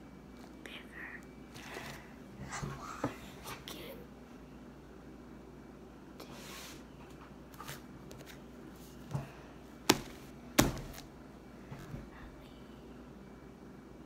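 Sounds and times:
slime soft thump: 9.9s - 11.0s.

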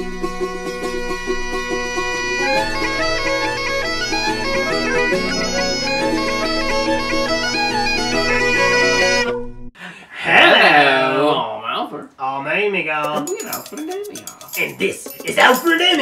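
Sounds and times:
bagpipe music: 0.0s - 9.7s.

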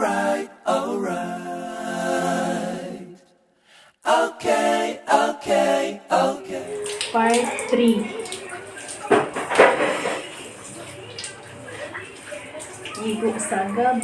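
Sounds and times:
voices singing a cappella: 0.0s - 3.4s, 4.0s - 9.2s.

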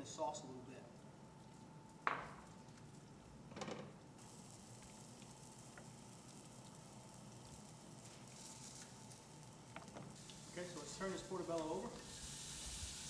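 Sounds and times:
faint sizzle from pan: 3.9s - 13.0s.

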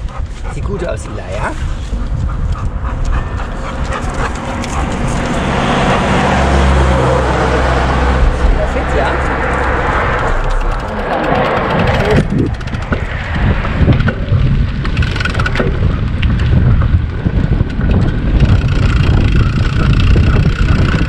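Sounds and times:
wind rumbling on microphone: 0.0s - 21.0s
bicycle clicks and rattles: 9.4s - 21.0s.

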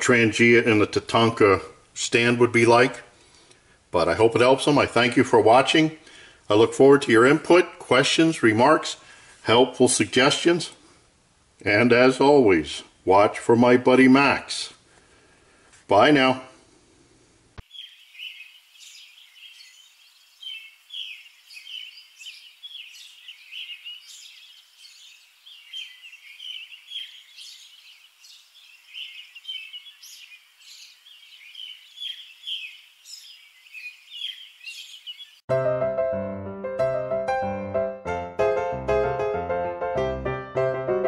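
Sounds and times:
birds chirping: 17.6s - 35.5s
piano music: 35.5s - 41.0s.

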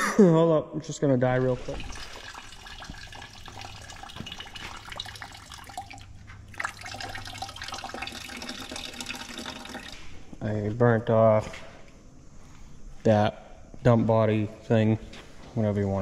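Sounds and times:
fluid trickling into plastic bucket: 1.4s - 10.2s.

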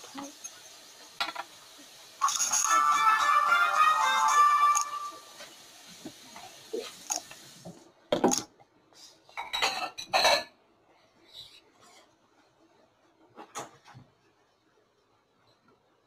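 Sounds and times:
objects clinking on glass tabletop: 1.2s - 1.5s, 2.2s - 3.0s.

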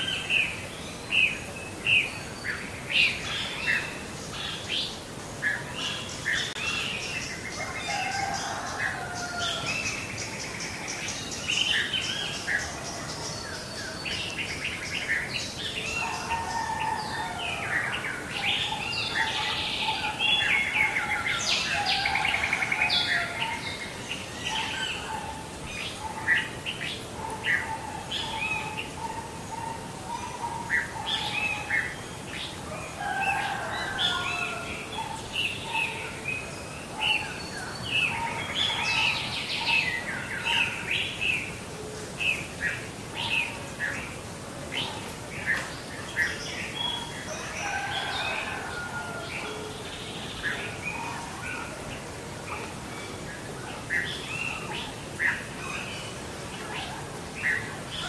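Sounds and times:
low steady bird call: 0.0s - 58.0s
songbirds chirping and trilling: 0.0s - 58.0s.

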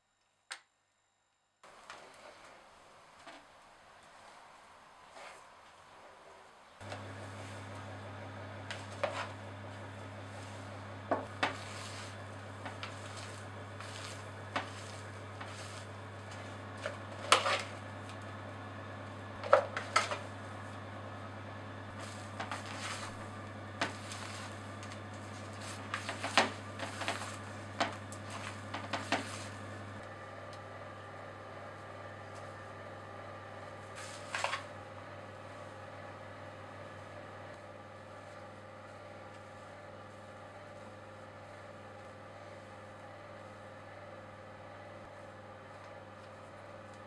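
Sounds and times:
spatula scraping plastic bowl: 8.7s - 9.4s, 11.1s - 17.8s.

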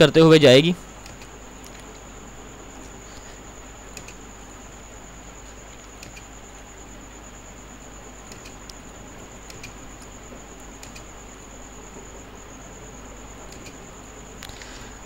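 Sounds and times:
steady hiss: 0.0s - 15.0s
computer mouse clicking: 1.0s - 1.9s, 3.9s - 4.2s, 5.8s - 6.3s, 8.3s - 8.8s, 9.4s - 9.8s, 10.8s - 11.1s, 13.5s - 13.8s.

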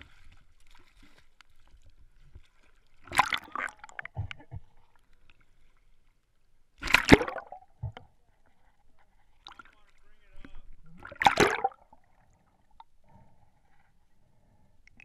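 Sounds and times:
water splashing and gurgling: 0.0s - 5.8s, 6.8s - 8.2s, 9.4s - 12.9s.

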